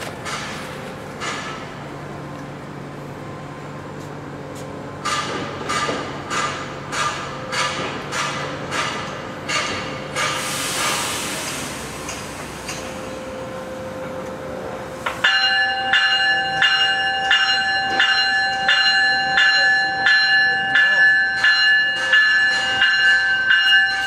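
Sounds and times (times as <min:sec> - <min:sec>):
hiss: 0:10.2 - 0:13.0
train bell ringing: 0:11.8 - 0:24.0.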